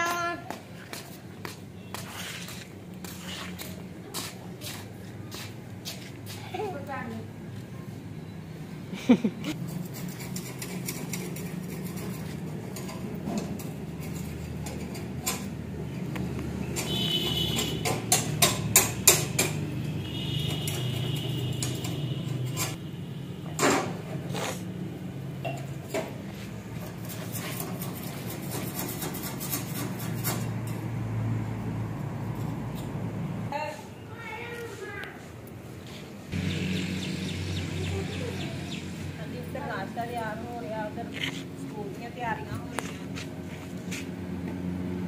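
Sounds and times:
metal dishes and utensils clinking: 20.4s - 22.8s.

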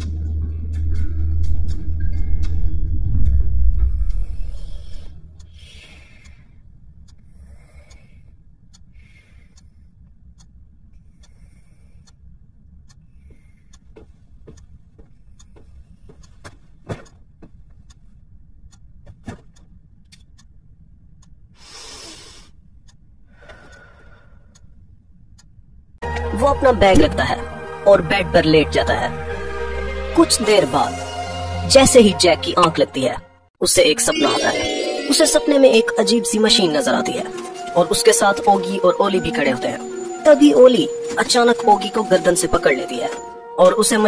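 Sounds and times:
low steady hum: 0.0s - 21.6s.

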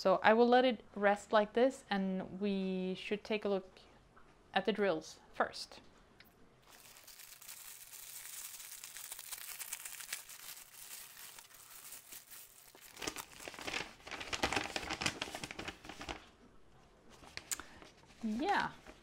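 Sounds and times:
plastic wrap crinkling: 6.6s - 16.3s.

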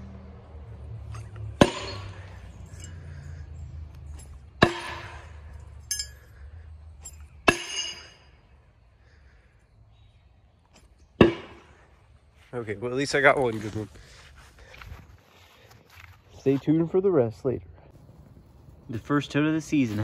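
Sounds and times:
light metallic clink: 1.0s - 6.3s, 7.0s - 8.4s.

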